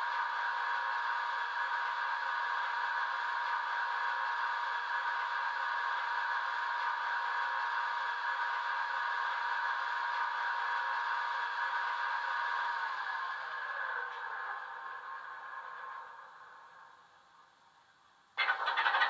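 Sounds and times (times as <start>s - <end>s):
diesel engine idling through small speaker: 0.0s - 19.0s.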